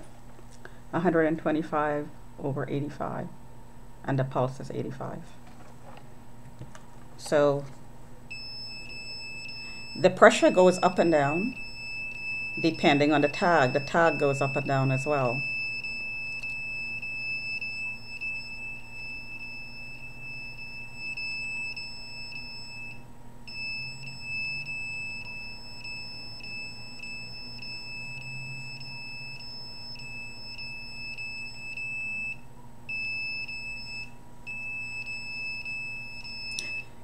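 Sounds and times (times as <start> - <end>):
high-pitched alarm beep tone: 8.3 - 36.9.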